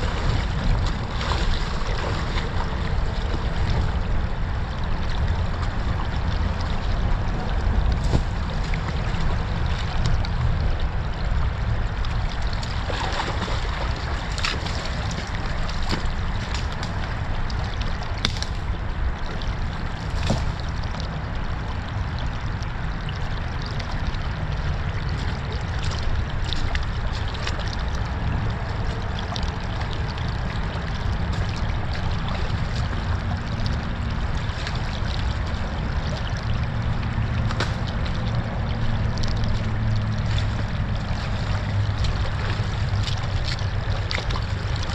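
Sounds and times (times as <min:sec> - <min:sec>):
creek water trickling: 0:00.0 - 0:44.9
steady low rumble: 0:00.0 - 0:44.9.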